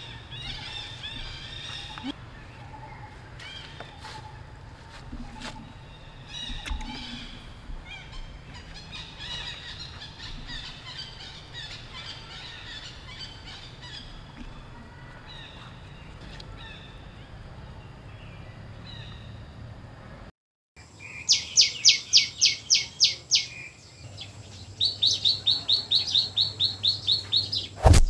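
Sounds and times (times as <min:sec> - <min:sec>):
high chirping animal calls: 0:00.0 - 0:04.4, 0:05.2 - 0:19.3
steady low rumble: 0:00.0 - 0:18.1.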